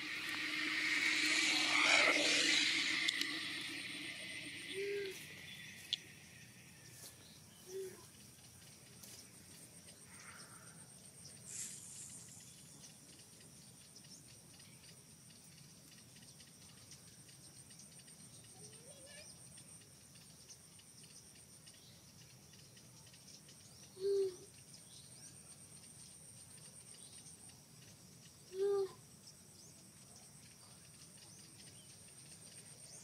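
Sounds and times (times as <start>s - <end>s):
loud pitched call: 0.0s - 5.4s
insects trilling: 0.0s - 33.0s.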